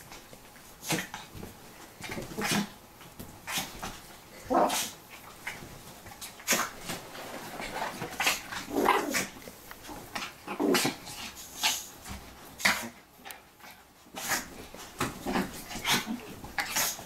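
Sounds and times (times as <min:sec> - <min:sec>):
dog growling: 0:06.5 - 0:11.2.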